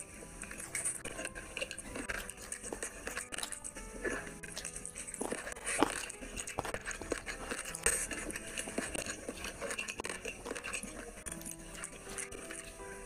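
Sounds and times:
chewing and mouth smacks: 0.0 - 13.0
fingers mixing rice on plate: 0.0 - 13.0.

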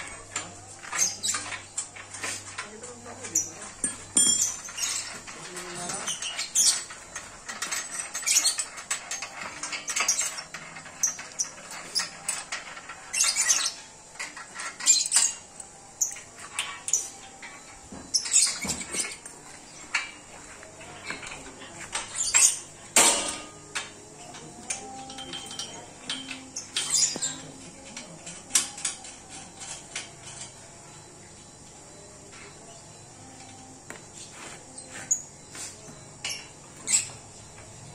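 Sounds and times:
metal tools clinking and clanking: 0.0 - 34.0, 34.8 - 37.9
chain and frame knocking: 0.9 - 20.2.

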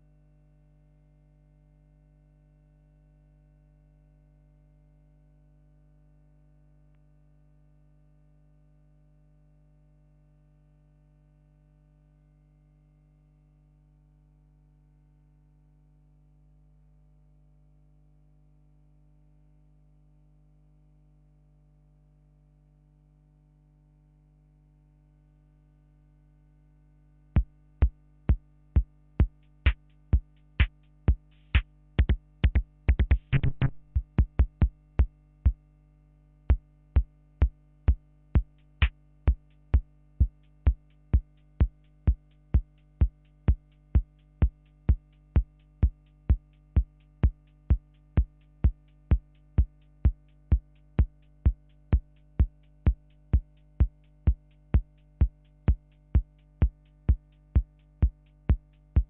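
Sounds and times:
low hum: 27.4 - 35.6
drum machine clicky hits: 30.6 - 34.7.

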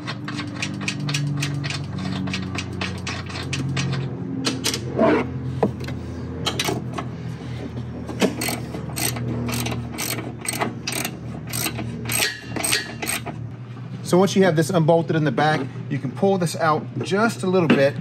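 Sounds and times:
socket ratchet clicking: 8.4 - 13.2.

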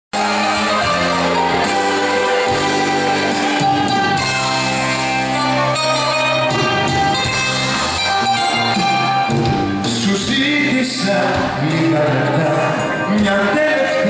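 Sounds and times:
live band playing a ballad: 0.2 - 14.0.

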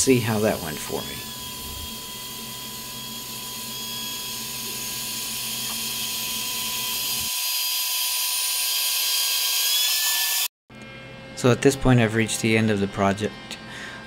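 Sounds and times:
router spindle whine: 0.0 - 10.5
low hum: 0.1 - 7.3.

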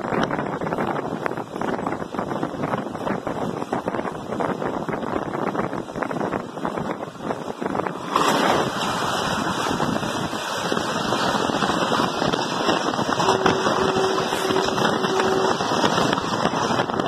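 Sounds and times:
rush of wind: 0.0 - 17.0
train coaches clattering over rails: 7.5 - 17.0.

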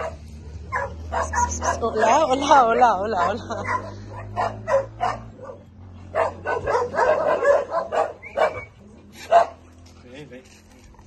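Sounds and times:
dog barking: 0.0 - 2.2, 3.1 - 9.6.

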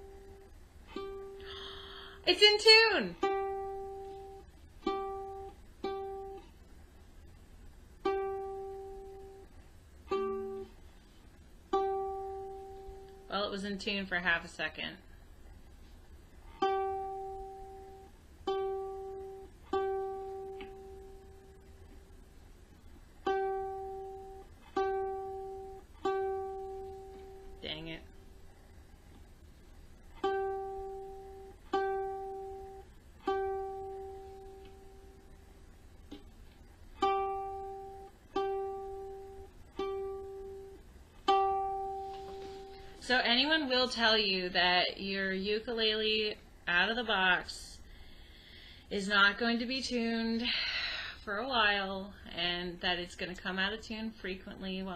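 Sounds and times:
ukulele string plucked: 0.0 - 1.5, 3.2 - 6.4, 8.0 - 9.4, 10.1 - 10.7, 11.7 - 13.3, 16.6 - 21.6, 23.2 - 27.6, 30.2 - 35.2, 37.0 - 42.8.

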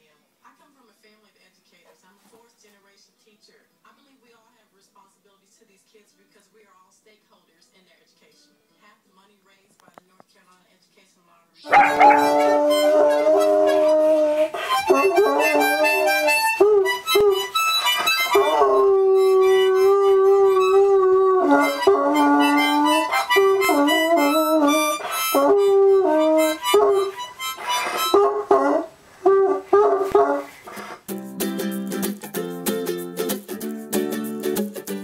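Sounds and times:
dog howling: 11.7 - 17.5, 18.2 - 30.6
harmonica breathy chords: 11.7 - 28.4.

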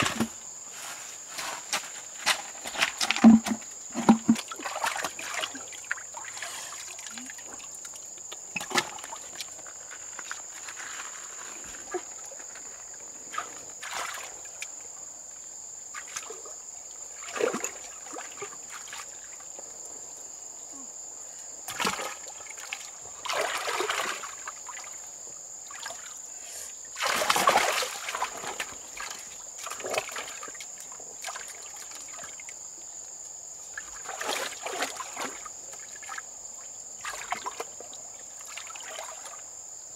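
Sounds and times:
water splashing and sloshing: 0.0 - 15.0, 16.0 - 19.8, 21.7 - 26.2, 26.9 - 32.6, 33.6 - 39.6
steady high-pitched hiss: 0.0 - 23.2.

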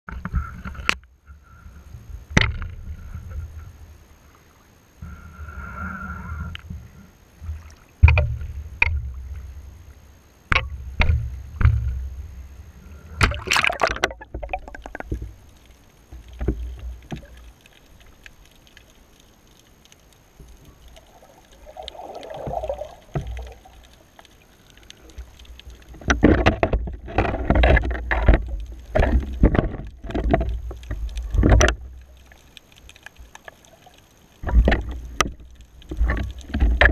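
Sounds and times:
water splashing: 13.1 - 36.9.

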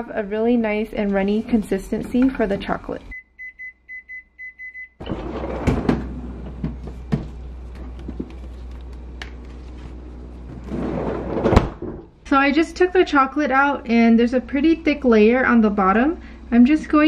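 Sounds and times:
microwave timer beeping: 3.1 - 5.3
freezer drawer pulled open: 5.0 - 6.7, 10.6 - 12.0
knocks and rustling of plastic: 5.7 - 9.6.

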